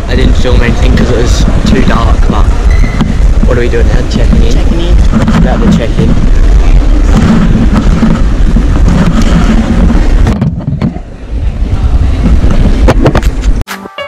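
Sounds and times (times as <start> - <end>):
luggage trolley rolling on tiles: 4.1 - 11.1.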